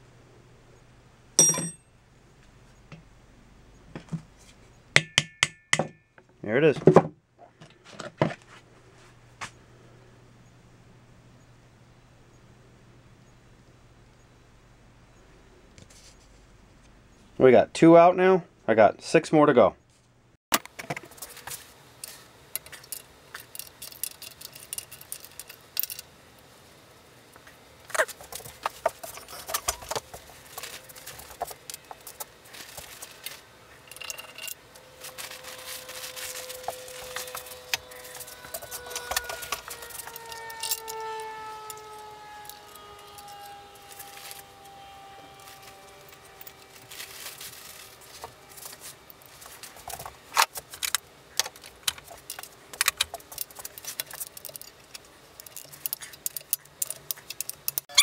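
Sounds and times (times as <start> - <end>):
metal clinks and rattles: 1.4 - 1.8, 22.0 - 26.1, 28.0 - 41.0, 51.9 - 58.0.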